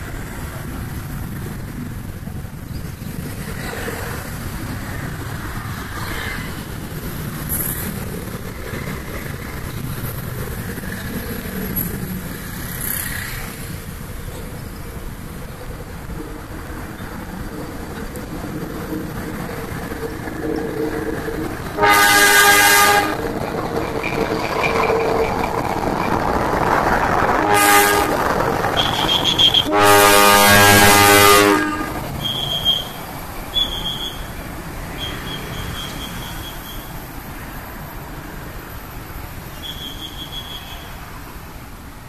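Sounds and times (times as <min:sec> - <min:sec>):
locomotive engine passing: 0:00.0 - 0:42.0
locomotive horn: 0:21.7 - 0:23.2, 0:27.3 - 0:32.8.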